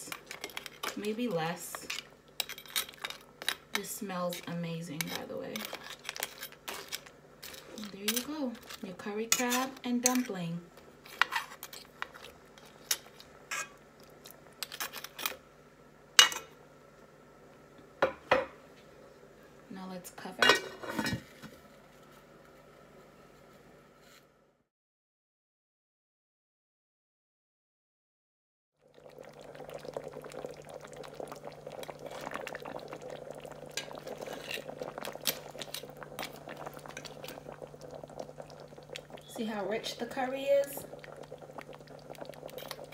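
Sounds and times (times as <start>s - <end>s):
sauce bubbling in a pot: 10.8s - 15.1s, 28.8s - 42.9s.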